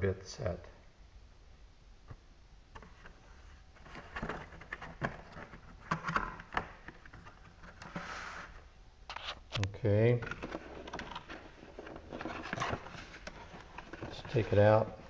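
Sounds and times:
cardboard box scraping slide: 7.8 - 8.6.

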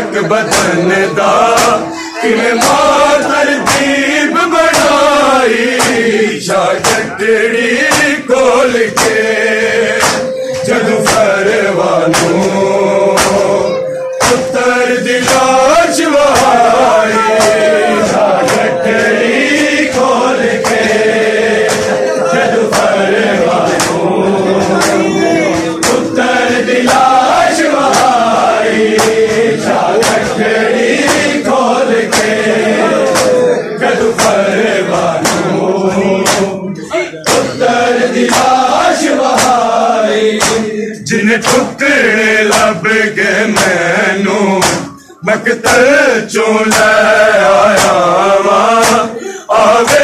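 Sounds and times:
crowd of men chanting: 0.0 - 50.0
hand slaps on bare chests: 0.5 - 0.8, 1.5 - 1.8, 2.6 - 6.1, 6.8 - 7.1, 7.8 - 9.3, 10.0 - 11.4, 12.1 - 13.5, 14.2 - 14.6, 15.2 - 15.6, 16.3 - 32.4, 33.0 - 33.4, 34.1 - 34.5, 35.2 - 35.6, 36.2 - 36.6, 37.2 - 37.6, 38.2 - 39.8, 40.4 - 40.7, 41.4 - 41.8, 42.5 - 42.8, 43.5 - 43.9, 44.6 - 44.9, 46.7 - 48.1, 48.8 - 49.1.

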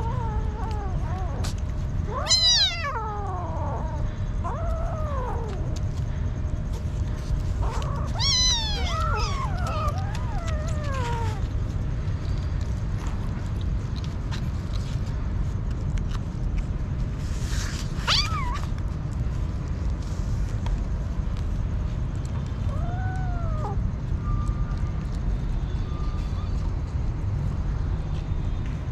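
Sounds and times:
kittens meowing: 0.0 - 11.6, 17.9 - 18.8, 22.6 - 23.9.

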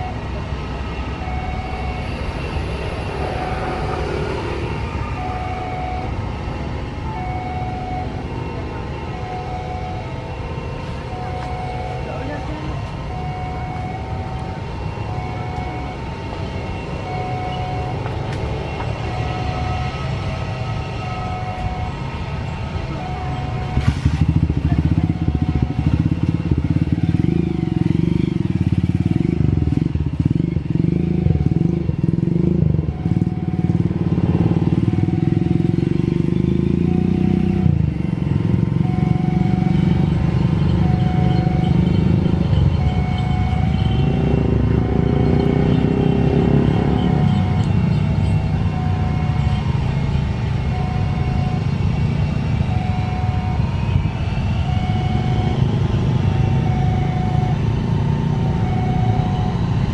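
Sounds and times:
motorcycle engines: 0.0 - 59.9.

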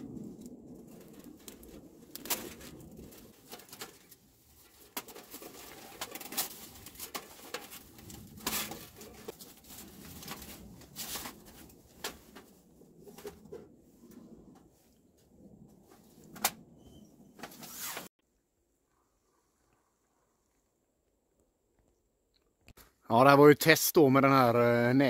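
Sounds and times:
mesh netting rustling and crinkling: 0.8 - 13.7.

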